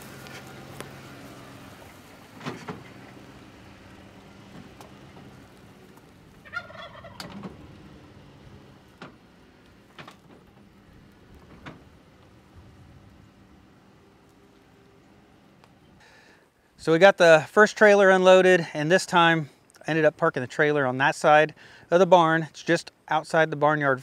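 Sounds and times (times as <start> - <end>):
trailer clunking and rattling: 0.0 - 15.9
pickup truck engine running: 0.0 - 16.0
turkey gobbling: 6.0 - 7.5.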